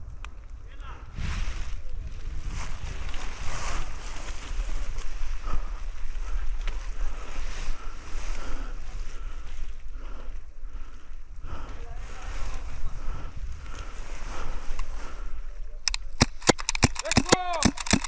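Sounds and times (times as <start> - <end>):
wind rumbling on microphone: 0.0 - 16.3
rustling through brush: 1.1 - 18.0
sharp clicks: 15.8 - 18.0.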